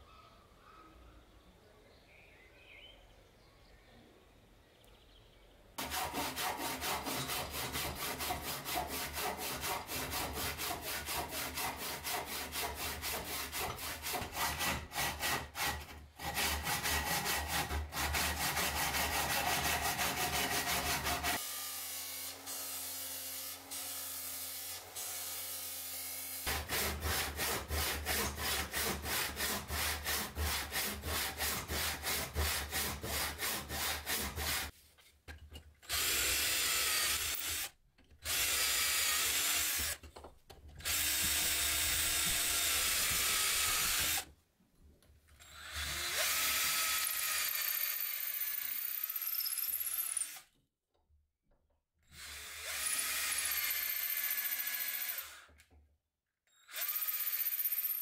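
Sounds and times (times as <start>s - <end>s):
hand saw cutting wood: 5.8s - 34.8s, 35.8s - 40.1s, 40.8s - 44.3s.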